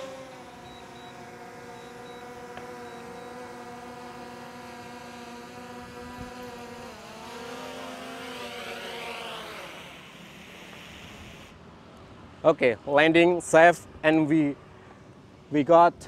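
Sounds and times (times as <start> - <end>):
drone propellers whining: 0.0 - 11.6.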